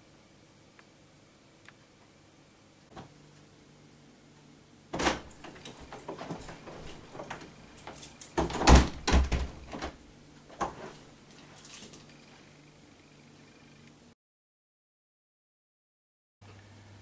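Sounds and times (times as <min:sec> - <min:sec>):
door click: 0:05.0 - 0:10.0
heavy thumps: 0:05.0 - 0:11.0
door clacking: 0:05.0 - 0:11.1.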